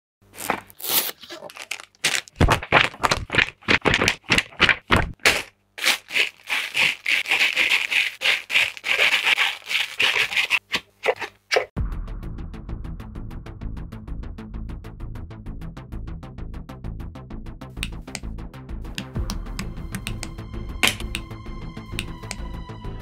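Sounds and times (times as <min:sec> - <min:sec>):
plastic bags rustling: 0:00.3 - 0:11.2.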